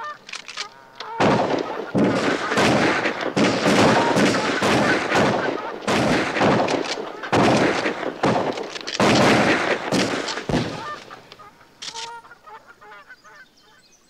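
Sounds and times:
ducks quacking faintly: 0.0 - 8.6, 9.3 - 13.9
shotgun blasts with echo: 1.2 - 11.3.

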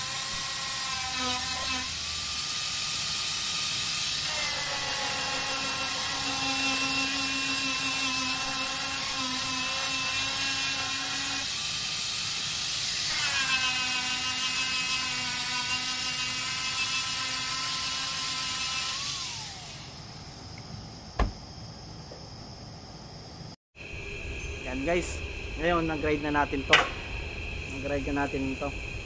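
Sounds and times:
angle grinder grinding metal: 0.0 - 20.0.

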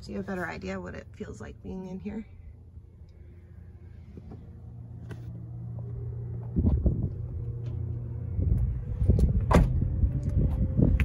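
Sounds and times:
steady low hum: 0.0 - 11.0
wind rumbling on microphone: 5.8 - 11.0.

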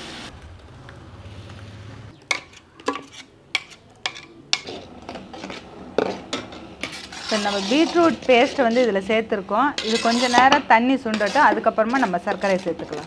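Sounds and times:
metal spoon scraping steel pot: 2.3 - 13.0.

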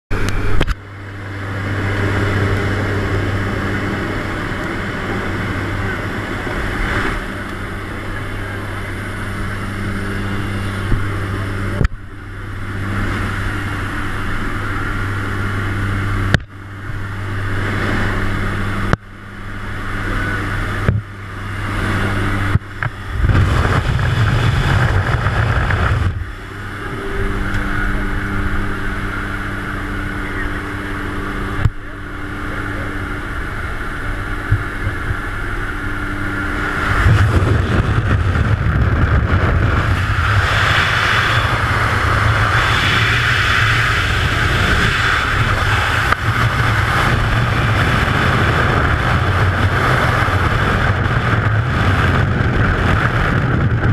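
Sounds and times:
plane engine and propeller drone: 0.1 - 53.9
wind rushing: 21.6 - 29.6, 34.5 - 53.9.

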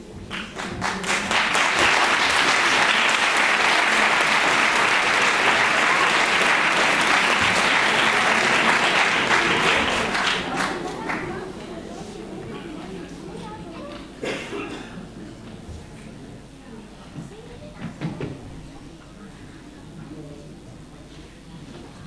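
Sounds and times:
audience applauding: 0.3 - 12.2.

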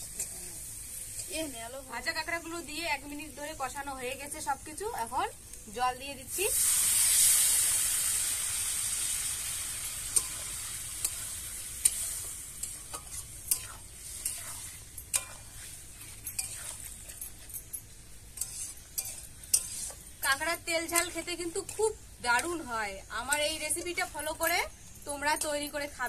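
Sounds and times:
water sizzling in hot wok: 0.0 - 26.0
metal spatula scraping wok: 8.8 - 26.0.

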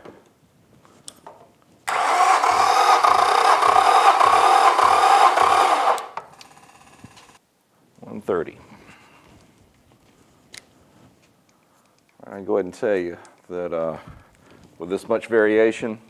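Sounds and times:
low compression pulses: 1.9 - 7.4
starter cranking outboard engine: 1.9 - 7.4.

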